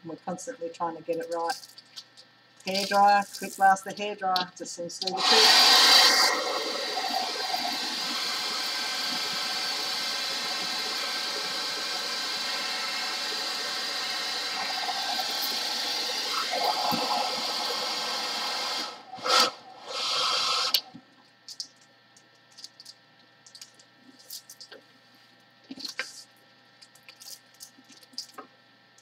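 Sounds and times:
hairdryer blowing air: 5.2s - 20.8s.

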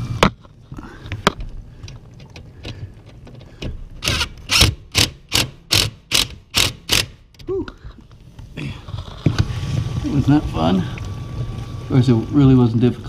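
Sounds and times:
screwdriver rasping: 4.0s - 7.2s.

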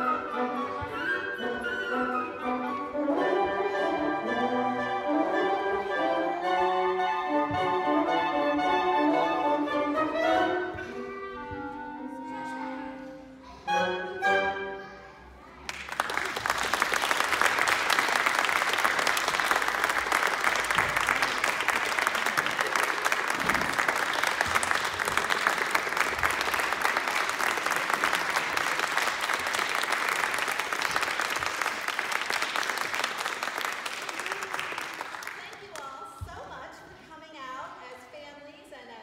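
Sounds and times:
woodwind chord: 0.0s - 15.0s
audience applause: 15.6s - 35.8s.

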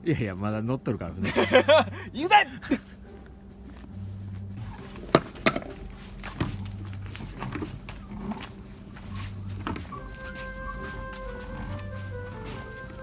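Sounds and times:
footsteps on asphalt: 3.1s - 13.0s
sharp knocks and clatters: 5.0s - 6.6s.

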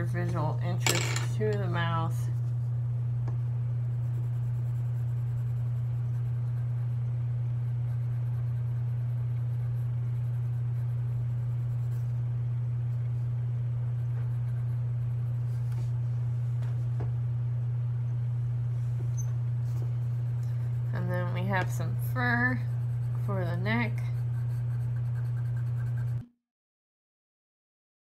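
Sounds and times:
steady low hum: 0.0s - 26.3s
pencil scratching on paper: 3.8s - 12.2s, 13.9s - 15.7s, 19.7s - 26.2s.

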